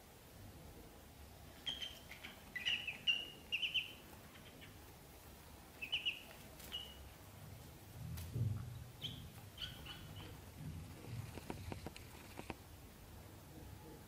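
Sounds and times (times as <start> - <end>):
ducklings peeping: 1.6 - 4.9, 5.8 - 7.1, 8.6 - 11.9.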